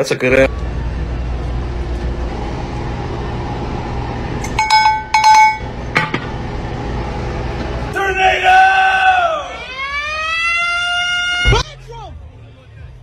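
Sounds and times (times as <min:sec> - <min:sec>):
steady low hum: 0:00.0 - 0:08.0
cowbell clanking: 0:04.6 - 0:05.7.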